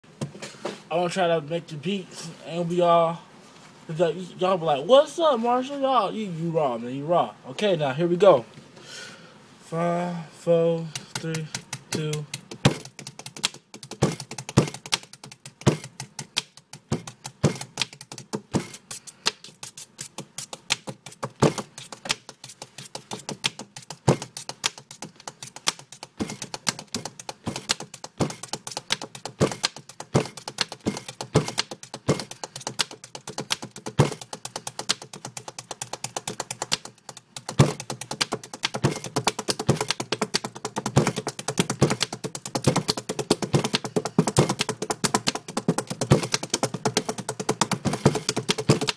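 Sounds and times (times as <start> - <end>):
rapid clicking taps: 10.9 - 48.9
heavier thumps: 11.0 - 18.8, 20.2 - 48.9.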